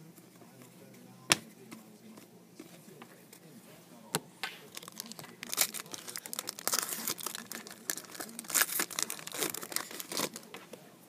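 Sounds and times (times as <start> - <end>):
shiny wrapper tearing and crinkling: 4.7 - 10.4.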